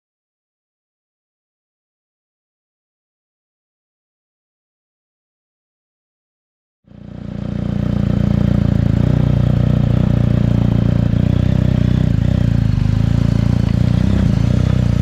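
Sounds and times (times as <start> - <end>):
motorcycle engine running at low revs: 6.9 - 15.0.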